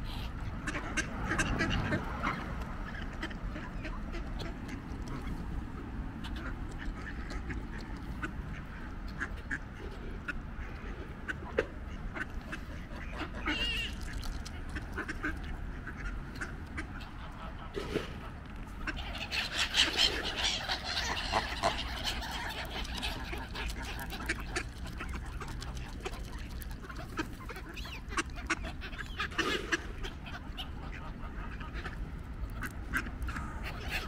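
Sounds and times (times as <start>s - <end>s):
ducks quacking: 0.0s - 34.0s
geese honking: 12.0s - 32.0s.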